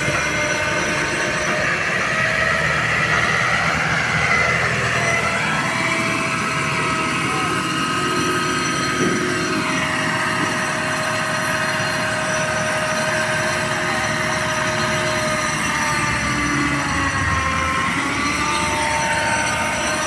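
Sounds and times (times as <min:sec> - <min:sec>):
low engine rumble: 0:00.0 - 0:12.4
hydraulic machinery whine: 0:00.0 - 0:20.0.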